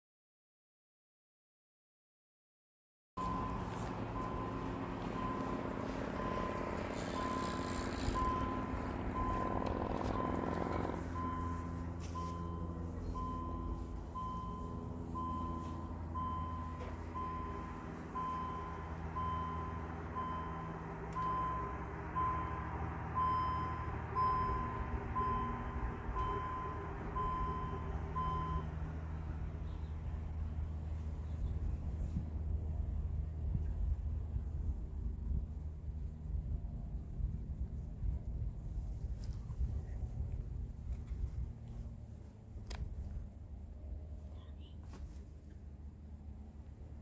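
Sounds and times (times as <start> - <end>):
level crossing signal beeping: 3.2 - 28.8.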